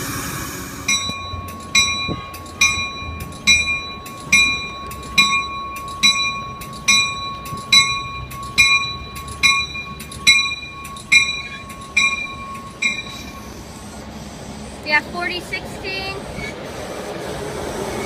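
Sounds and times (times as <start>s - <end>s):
air hiss: 0.0s - 1.0s
locomotive bell ringing: 0.0s - 14.0s
low rumble of train: 0.0s - 18.0s.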